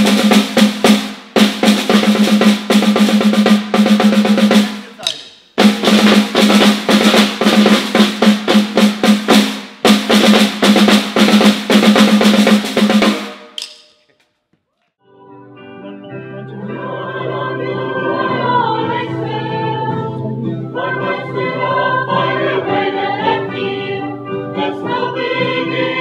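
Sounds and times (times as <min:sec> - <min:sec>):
snare drum rolls: 0:00.0 - 0:13.9.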